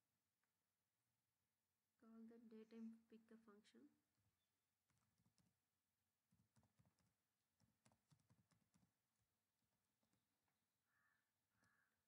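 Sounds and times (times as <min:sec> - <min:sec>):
faint keyboard typing: 0:04.2 - 0:12.0.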